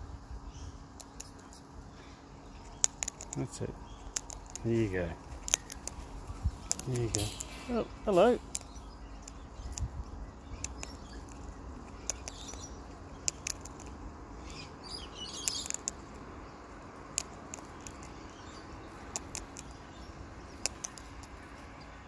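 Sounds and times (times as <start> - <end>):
parrot cracking seeds: 2.6 - 9.9, 10.5 - 19.8, 20.5 - 21.6
faint bird chirps: 5.5 - 13.8, 14.4 - 22.0.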